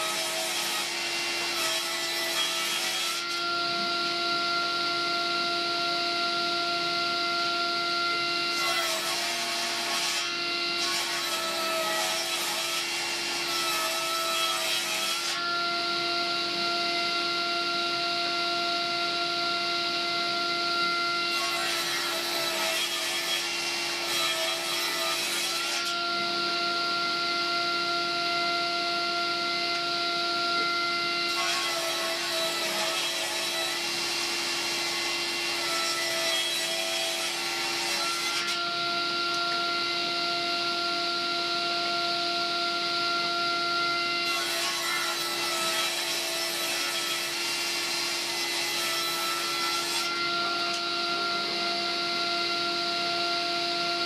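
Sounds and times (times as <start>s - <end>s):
saw blade cutting wood: 0.0s - 4.1s, 8.1s - 15.8s, 20.8s - 26.7s, 29.6s - 39.6s, 44.2s - 51.7s
table saw whining: 0.0s - 54.0s.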